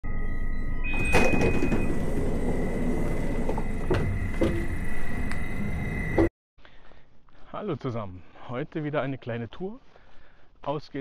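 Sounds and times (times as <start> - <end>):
steady high tone: 0.0 - 6.3
sliding train door opening: 0.9 - 6.3
train running noise: 0.9 - 6.3.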